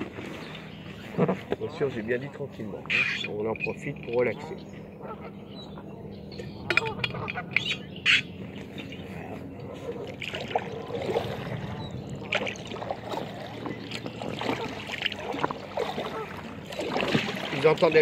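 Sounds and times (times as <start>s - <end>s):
water splashing around kayak: 0.0s - 1.7s, 9.6s - 18.0s
geese honking: 2.8s - 3.4s, 4.4s - 6.0s, 6.6s - 8.8s, 14.4s - 16.7s.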